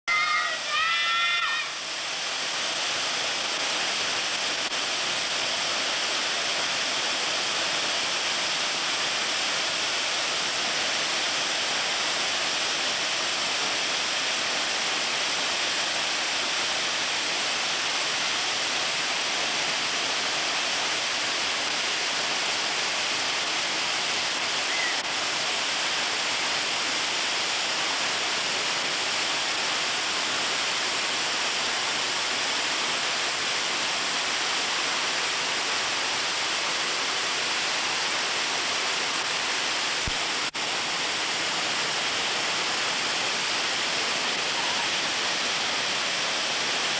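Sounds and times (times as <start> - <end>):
brief high voice: 0.1 - 1.8, 24.7 - 25.0, 44.5 - 45.0
waterfall rushing: 0.1 - 46.9.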